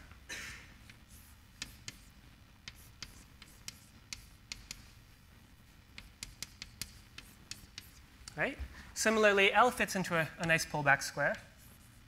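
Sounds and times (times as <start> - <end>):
chalk tapping on blackboard: 0.8 - 5.0, 5.9 - 8.4, 10.2 - 12.0.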